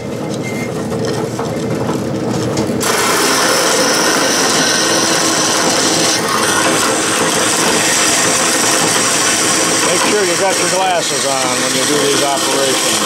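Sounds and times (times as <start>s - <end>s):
machine hum: 0.0s - 13.0s
bandsaw cutting metal rod: 2.8s - 13.0s.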